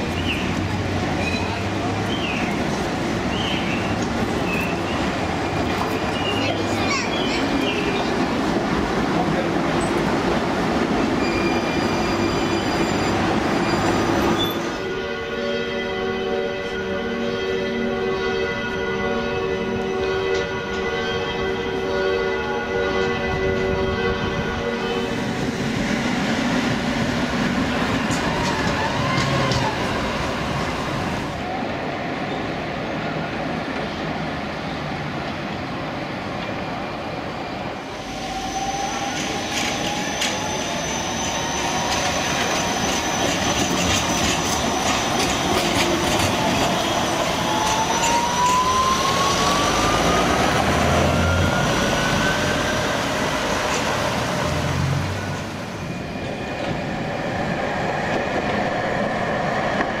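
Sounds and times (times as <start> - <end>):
tram wheels rumbling on rails: 0.0 - 15.0, 16.6 - 60.0
tram electric drive whine: 16.0 - 60.0.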